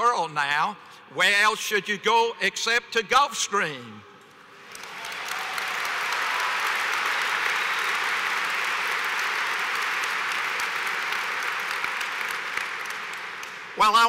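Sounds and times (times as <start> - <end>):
audience applauding: 4.5 - 13.8.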